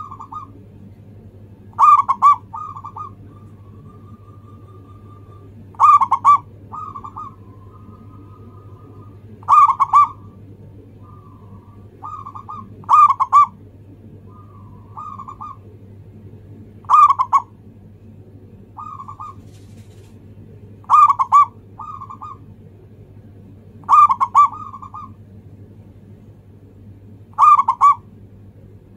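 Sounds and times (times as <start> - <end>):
dove cooing: 0.0 - 0.6, 1.7 - 13.6, 14.2 - 15.8, 16.8 - 17.6, 18.8 - 20.1, 20.8 - 22.5, 23.8 - 25.2, 27.3 - 28.1.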